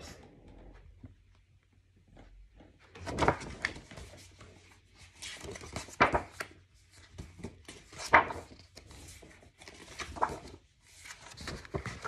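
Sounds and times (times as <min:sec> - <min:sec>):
picture book rustling and knocks: 0:02.1 - 0:12.0.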